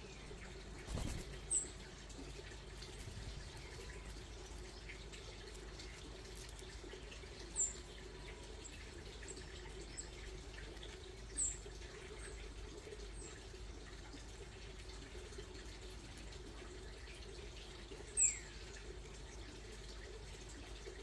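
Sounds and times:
small bird chirping: 0.0s - 1.8s.

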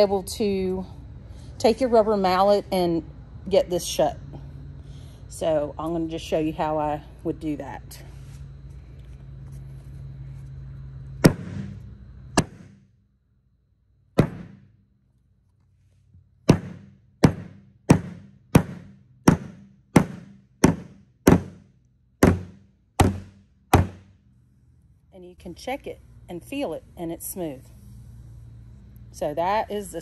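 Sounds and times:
rubber mallet knocking floor tile: 14.2s - 14.6s, 16.5s - 21.6s, 22.2s - 24.1s.

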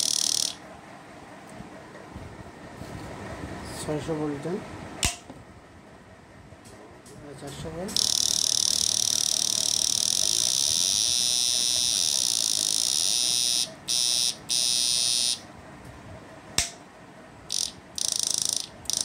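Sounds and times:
high-pitched electrical whine: 0.0s - 0.7s, 7.5s - 15.5s, 17.5s - 19.0s
sharp click: 5.0s - 5.3s, 16.6s - 16.8s.

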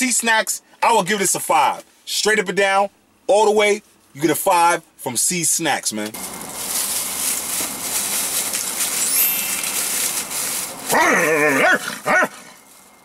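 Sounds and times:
plastic bag rustling: 6.1s - 13.0s
man yelling: 10.9s - 12.3s.

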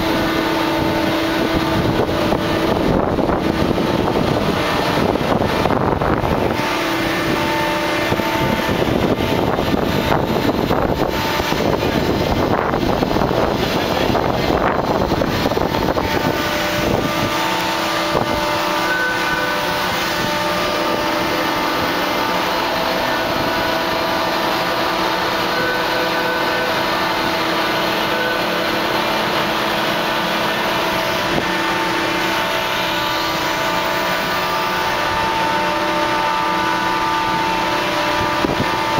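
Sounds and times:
wind buffeting microphone: 0.0s - 25.6s, 37.1s - 38.9s
ship deck machinery drone: 0.0s - 38.9s.

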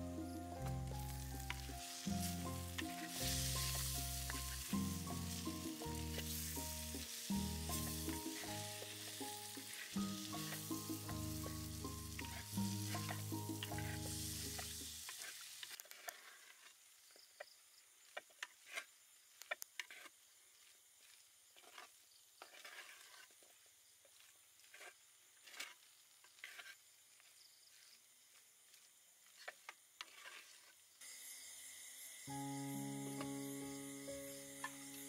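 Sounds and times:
background music: 0.0s - 15.0s, 32.2s - 35.0s
faint sizzle: 0.0s - 17.0s.

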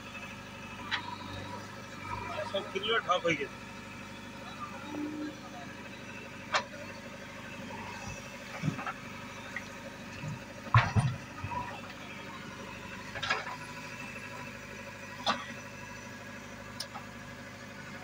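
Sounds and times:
diesel engine running: 0.0s - 18.0s
metallic clanks of digger arm: 13.1s - 13.7s.

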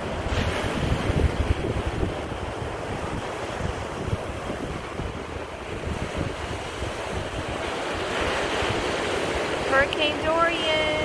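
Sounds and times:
ocean surf breaking on beach: 0.0s - 11.0s
wind buffeting microphone: 0.0s - 11.0s.

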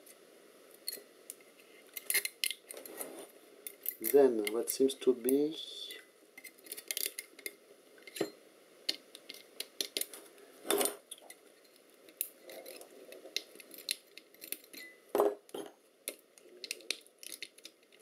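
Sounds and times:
small metal clicks and clinks: 9.2s - 15.0s, 15.6s - 18.0s.

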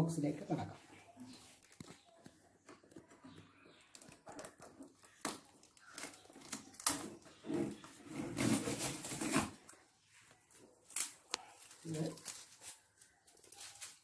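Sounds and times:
scraping and rustling on cardboard: 6.1s - 9.8s.

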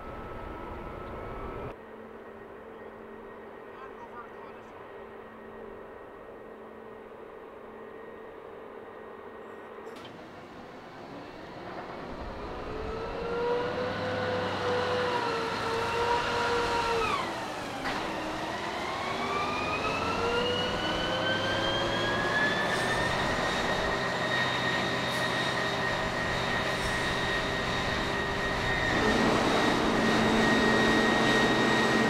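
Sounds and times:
fire truck engine and pump whining: 0.0s - 32.0s
flames roaring: 25.5s - 32.0s.

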